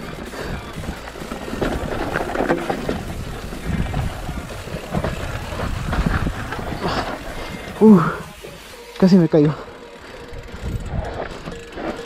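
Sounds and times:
mountain bike rattling and bumping: 0.0 - 12.0
wind buffeting microphone: 2.9 - 7.8, 10.3 - 11.4.

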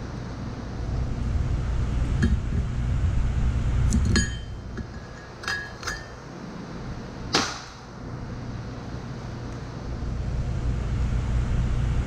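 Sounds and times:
low rumble: 0.6 - 4.8
steel tools clinking on metal: 4.0 - 6.2.

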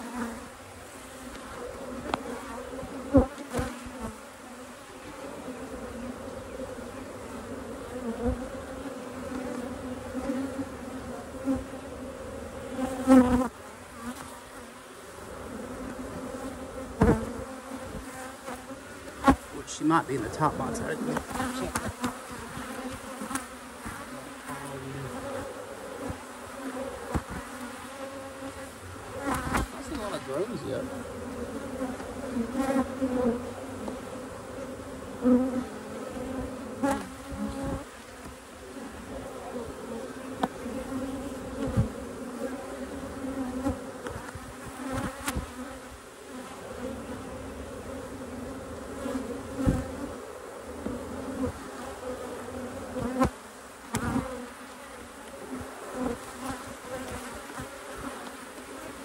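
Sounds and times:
bees buzzing: 0.0 - 59.0.

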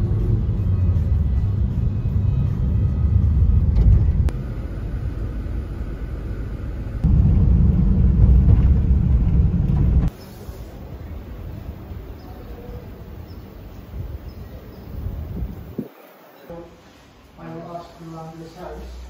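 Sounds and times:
car road rumble from inside: 0.0 - 10.2.

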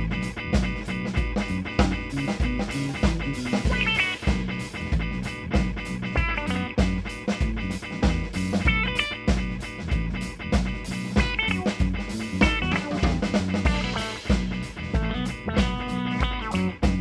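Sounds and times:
bass guitar: 0.0 - 17.0
drum kit steady beat: 0.0 - 17.0
electric guitar lead runs: 0.0 - 17.0.

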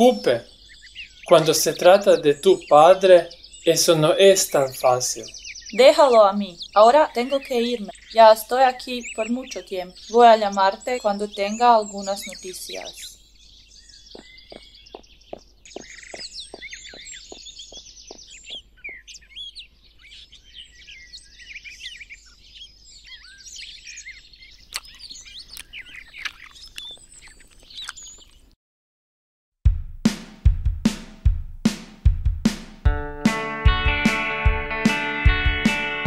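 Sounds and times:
songbirds chirping: 0.0 - 28.6.

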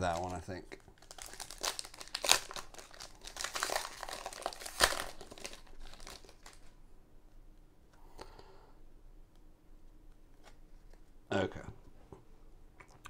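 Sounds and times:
sharp wrapper crackle: 0.0 - 6.7
plastic wrapper crinkling: 0.0 - 6.8.

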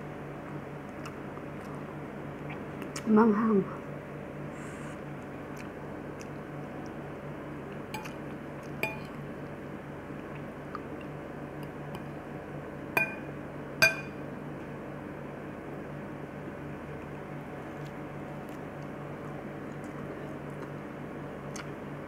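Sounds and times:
fork clinking on plate: 8.8 - 9.1, 13.0 - 14.2
low hum: 8.8 - 22.0.

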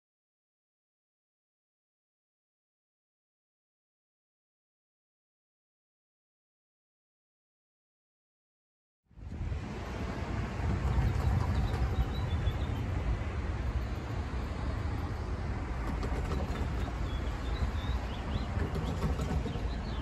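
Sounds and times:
road traffic rumble: 9.1 - 20.0.

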